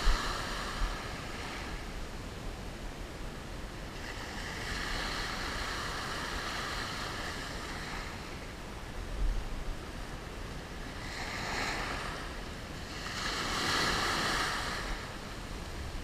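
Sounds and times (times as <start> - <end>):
waves washing over sand: 0.0 - 2.0, 3.8 - 8.6, 9.9 - 16.0.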